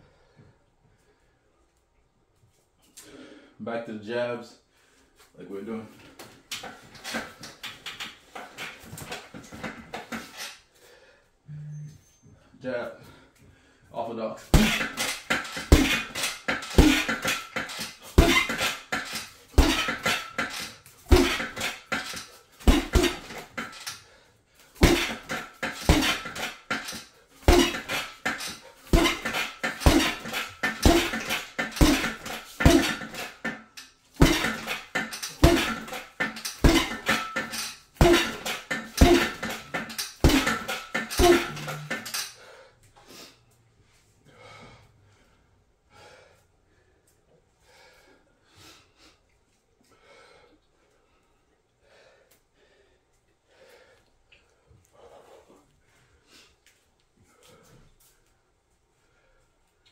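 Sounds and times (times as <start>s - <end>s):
punches thudding with rattle: 6.5s - 10.5s, 14.5s - 24.0s, 24.8s - 42.3s.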